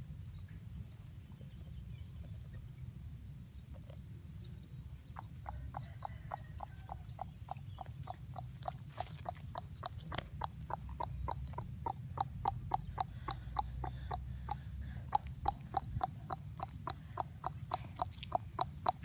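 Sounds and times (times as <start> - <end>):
dog panting rapidly: 7.8 - 19.0.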